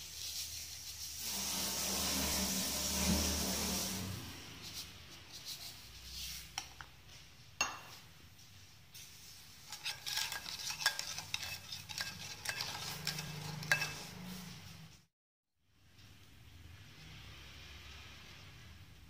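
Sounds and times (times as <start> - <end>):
metal spoon clinking in steel bowl: 9.7 - 14.1.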